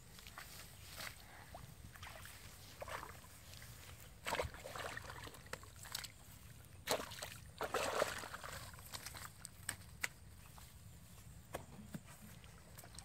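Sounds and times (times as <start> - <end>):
shallow water sloshing and splashing: 0.2 - 9.8.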